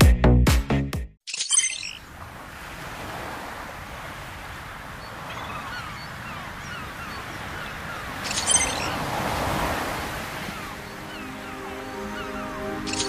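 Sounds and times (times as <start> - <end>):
birds calling: 4.8 - 13.0.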